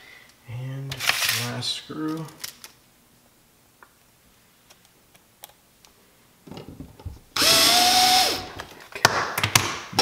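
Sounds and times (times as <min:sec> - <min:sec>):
sharp clicks of drill: 0:07.4 - 0:08.5
power drill motor whirring: 0:07.4 - 0:08.6.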